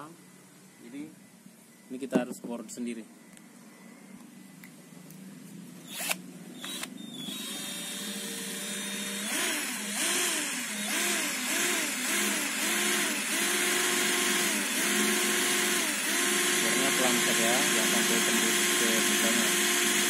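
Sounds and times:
cordless drill whine: 5.8 - 20.0
drill clicks: 5.9 - 20.0.

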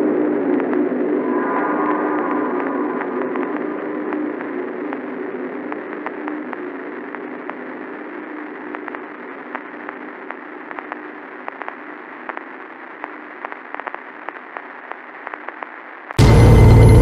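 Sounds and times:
loud dense drone: 0.0 - 5.5, 16.2 - 17.0
steady low hum: 0.0 - 12.2
static crackles: 0.0 - 16.3
radio-like hiss: 0.0 - 17.0.

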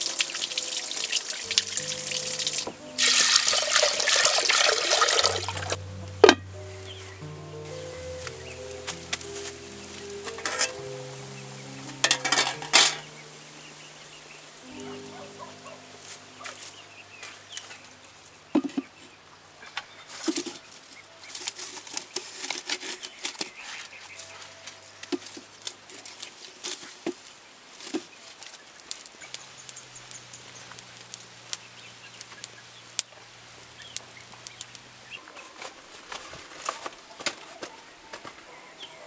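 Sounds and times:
wood fire crackling: 0.0 - 18.6, 19.2 - 38.4
sharp pops from burning logs: 26.7 - 35.0.

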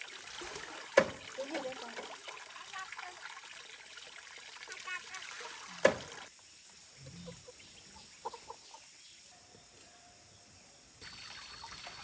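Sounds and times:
hens clucking: 7.0 - 8.9.

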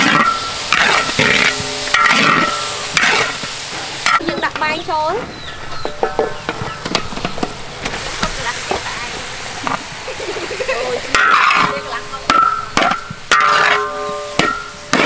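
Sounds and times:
metal spatula scraping a wok: 0.0 - 4.4, 11.1 - 15.0
vegetables sizzling in oil: 0.0 - 15.0.

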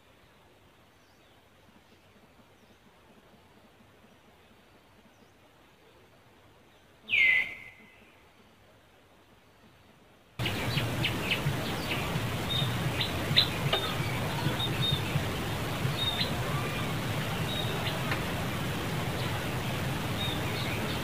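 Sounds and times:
low hum: 10.4 - 21.0.

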